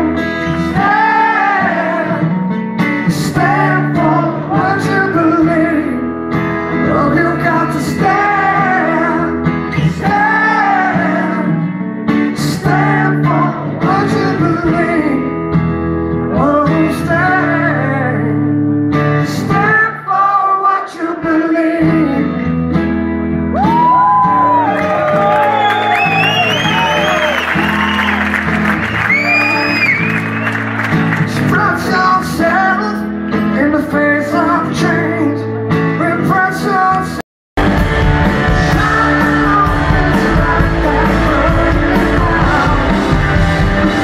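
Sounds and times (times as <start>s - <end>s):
man singing: 0.0s - 2.3s, 2.9s - 15.5s, 16.2s - 18.5s, 19.2s - 22.5s, 31.2s - 37.2s, 38.2s - 44.0s
acoustic guitar: 0.0s - 44.0s.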